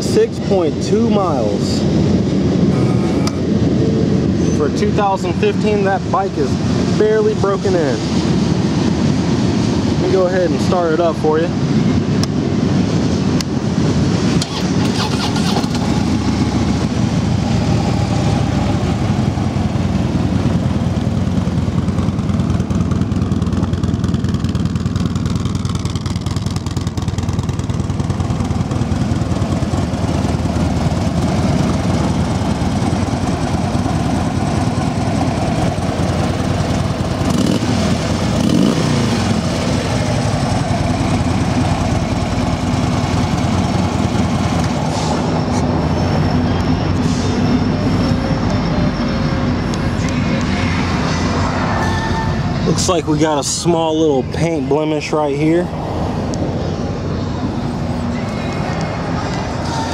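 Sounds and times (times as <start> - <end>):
motorcycle engine idling: 14.5 - 51.2.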